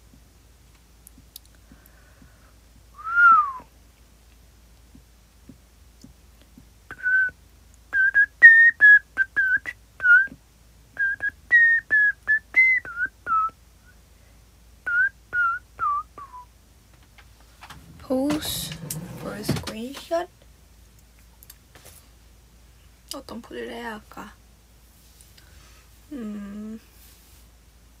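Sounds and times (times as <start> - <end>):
woman whistling a tune: 3.0 - 3.7, 6.9 - 7.4, 8.0 - 10.4, 11.0 - 13.6, 14.9 - 16.5.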